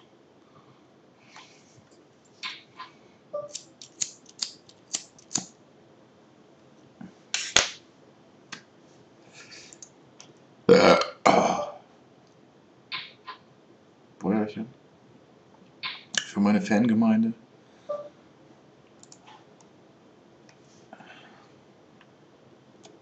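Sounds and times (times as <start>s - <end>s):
person burping loudly: 10.7s - 11.8s.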